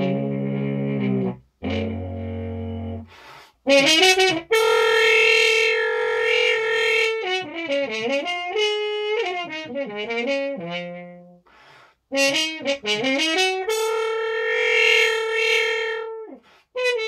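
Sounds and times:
muted french horn tune: 0.0s - 3.1s, 3.7s - 11.4s, 12.2s - 17.0s
player breathing: 3.1s - 3.6s, 11.5s - 12.1s.

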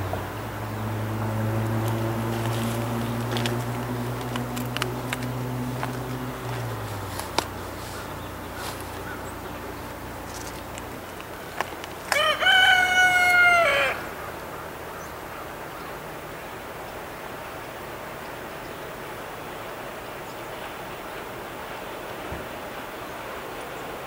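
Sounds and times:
faint locomotive rumble: 0.0s - 24.0s.

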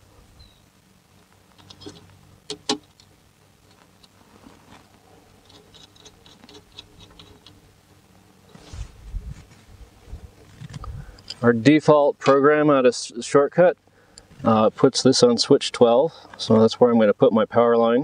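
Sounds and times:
screwdriver clicking and scraping: 5.4s - 7.6s.

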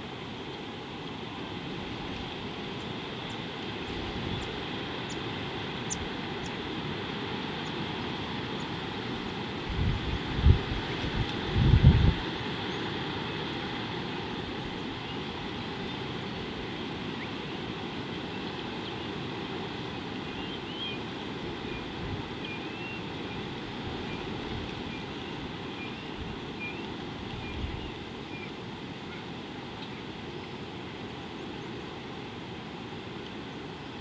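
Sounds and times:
wind rumble on microphone: 3.7s - 4.7s, 9.4s - 13.3s, 27.1s - 28.1s.

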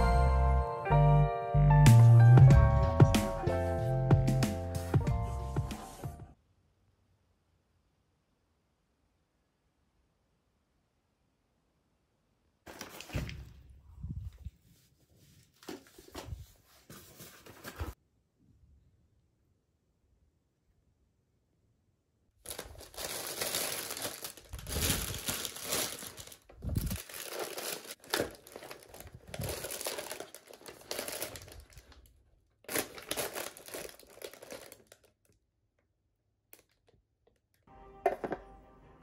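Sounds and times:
plastic packaging crinkling: 12.7s - 13.5s, 22.4s - 35.2s.

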